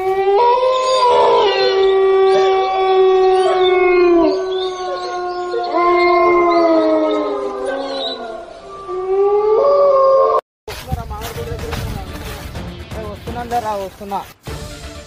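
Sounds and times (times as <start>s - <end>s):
dramatic music with wailing notes: 11.2s - 15.0s.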